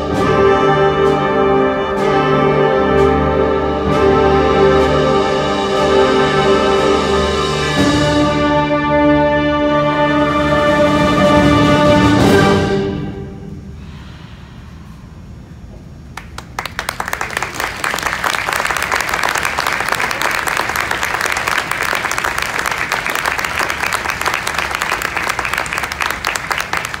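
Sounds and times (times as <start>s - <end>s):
audience applause: 16.2s - 27.0s.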